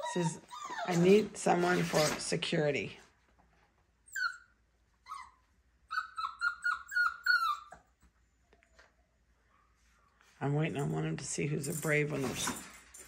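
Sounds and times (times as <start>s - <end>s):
puppy whining: 0.0s - 1.3s, 4.0s - 9.8s.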